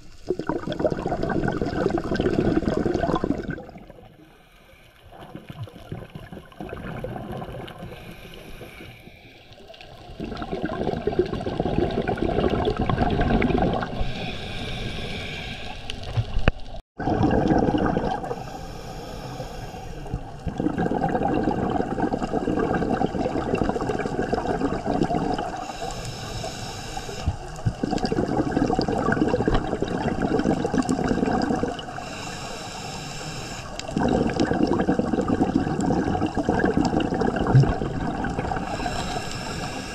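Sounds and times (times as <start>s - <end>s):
gurgling rush of exhaled bubbles: 0.0s - 4.2s, 5.1s - 8.8s, 9.8s - 14.5s, 16.1s - 18.6s, 20.0s - 26.0s, 27.2s - 32.1s, 33.8s - 39.9s
regulator air hiss on inhale: 4.2s - 5.2s, 7.8s - 9.8s, 14.0s - 16.1s, 18.3s - 20.4s, 25.6s - 27.7s, 31.9s - 33.9s, 38.6s - 39.9s.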